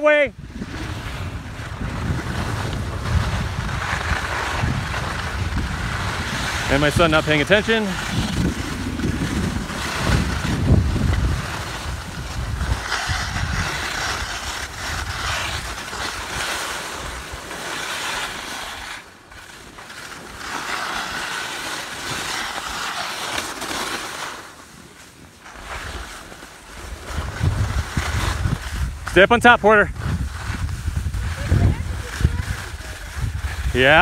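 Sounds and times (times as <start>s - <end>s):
skis hissing over snow: 0.0s - 34.0s
wind rumble on microphone: 0.3s - 17.4s, 26.8s - 34.0s.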